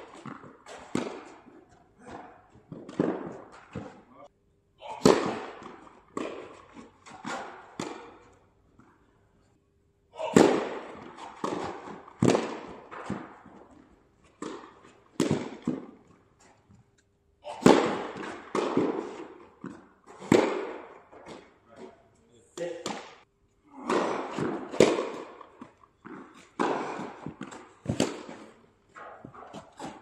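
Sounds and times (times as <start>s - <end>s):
tennis ball bouncing on court: 0.0s - 4.0s, 5.0s - 8.3s, 10.4s - 16.2s, 17.6s - 21.5s, 23.9s - 30.0s
tennis ball struck by rackets: 0.0s - 4.0s, 5.0s - 8.3s, 10.3s - 16.0s, 17.6s - 21.6s, 22.6s - 23.2s, 23.8s - 30.0s.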